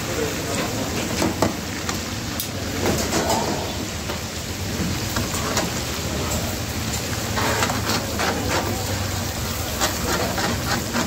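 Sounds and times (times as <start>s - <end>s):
food sizzling in hot oil: 0.0s - 11.0s
metal ladle scraping a pan: 7.2s - 11.0s.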